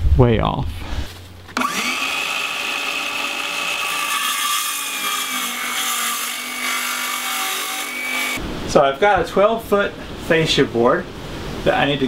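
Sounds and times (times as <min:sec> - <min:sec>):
circular saw cutting wood: 0:01.6 - 0:08.4.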